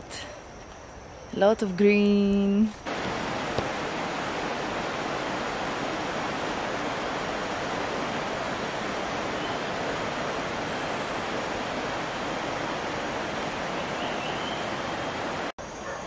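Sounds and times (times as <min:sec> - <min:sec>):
water rushing: 0:02.8 - 0:15.5.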